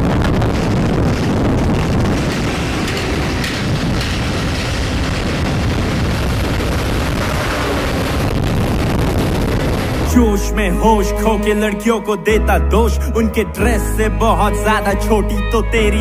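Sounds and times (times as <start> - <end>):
wind buffeting microphone: 0.0 - 10.4
road noise: 0.0 - 16.0.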